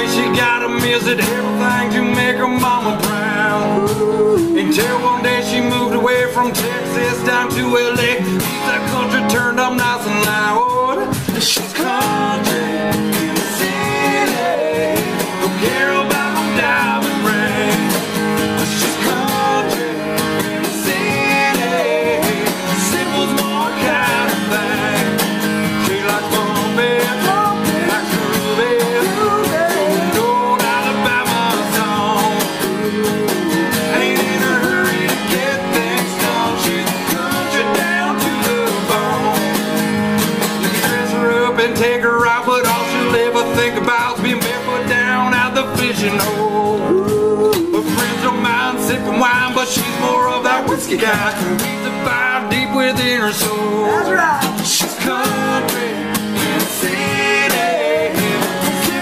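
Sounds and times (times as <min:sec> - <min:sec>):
person singing: 0:00.0 - 0:39.7, 0:40.8 - 0:59.0
country band music: 0:00.0 - 0:59.0.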